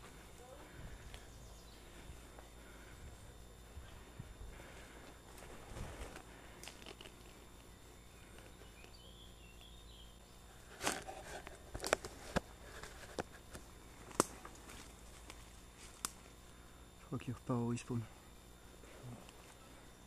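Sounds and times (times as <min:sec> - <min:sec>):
bird chirp: 0:01.2 - 0:02.0, 0:07.9 - 0:10.6
twigs snapping underfoot: 0:05.3 - 0:07.7, 0:10.7 - 0:16.4.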